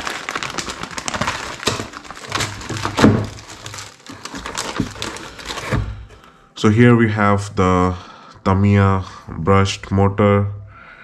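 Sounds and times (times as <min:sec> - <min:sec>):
plastic bags crinkling: 0:00.0 - 0:06.1.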